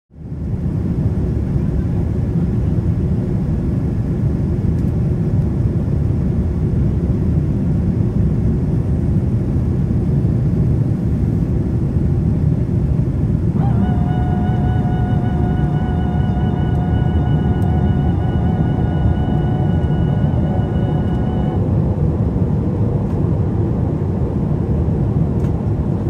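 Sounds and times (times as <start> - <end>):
airliner cabin engine rumble: 0.1 - 26.0
sustained musical tone: 13.6 - 21.8.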